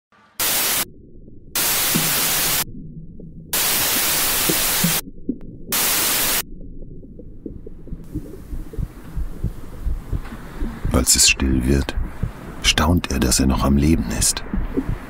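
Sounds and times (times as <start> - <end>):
white-noise static bursts: 0.2 - 0.9, 1.6 - 2.7, 3.5 - 5.0, 5.7 - 6.4, 8.1 - 15.0
steady low rumble: 0.4 - 15.0.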